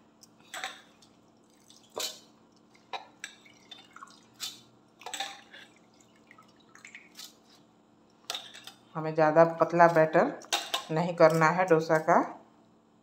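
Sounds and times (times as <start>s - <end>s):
water splashing and dripping: 1.0s - 4.5s, 5.8s - 7.3s.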